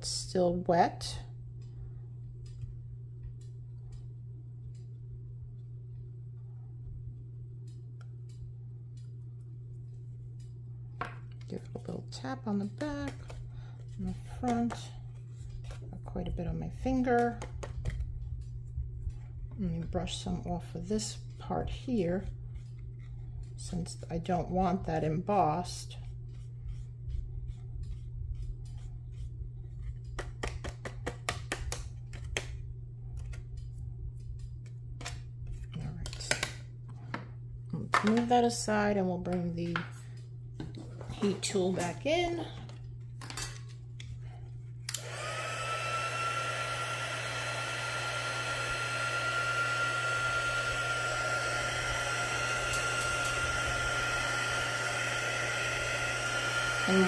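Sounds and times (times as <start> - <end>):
steady low hum: 0.0 - 57.0
paintbrush brushing on cardstock: 25.7 - 30.0
heat tool blowing air whine: 44.9 - 57.0.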